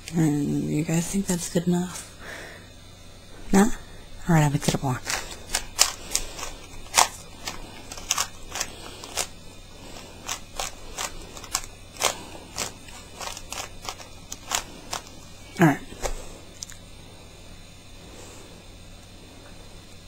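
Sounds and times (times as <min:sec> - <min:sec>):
plastic cube clicking: 0:05.0 - 0:09.3, 0:10.2 - 0:15.1.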